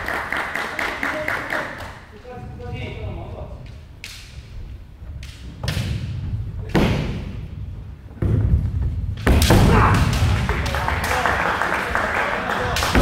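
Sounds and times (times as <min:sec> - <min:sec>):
bamboo swords striking armour: 0:05.6 - 0:07.4, 0:09.2 - 0:10.3.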